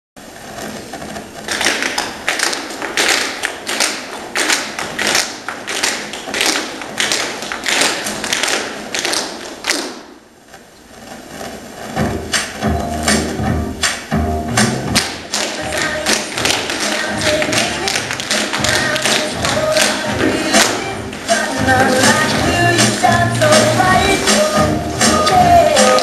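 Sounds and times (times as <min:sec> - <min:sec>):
music with bass beat: 0:12.0 - 0:15.0, 0:21.3 - 0:26.0.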